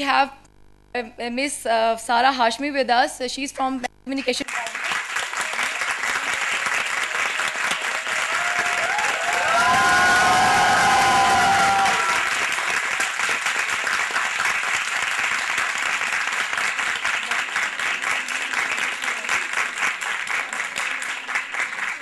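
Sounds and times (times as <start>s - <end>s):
audience applauding: 4.4s - 22.0s.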